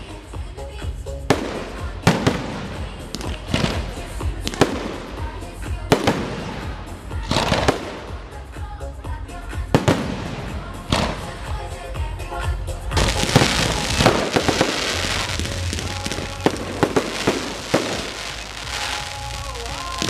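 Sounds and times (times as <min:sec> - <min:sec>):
firework shells bursting: 0:13.0 - 0:20.0.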